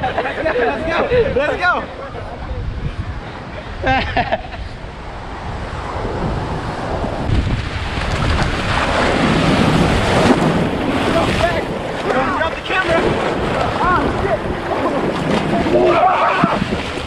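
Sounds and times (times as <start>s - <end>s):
ocean surf breaking: 0.0s - 17.0s
wind buffeting microphone: 0.0s - 17.0s
people splashing in water: 7.3s - 17.0s.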